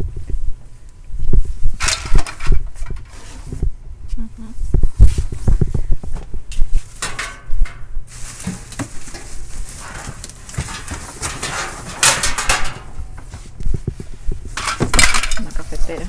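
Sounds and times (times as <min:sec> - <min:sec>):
rustling of boxes and bags: 0:04.6 - 0:16.0.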